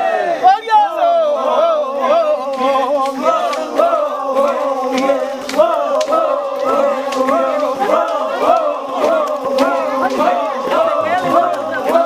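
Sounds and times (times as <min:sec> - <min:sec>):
men chanting in unison: 0:00.0 - 0:12.0
sharp clicks: 0:04.4 - 0:06.2.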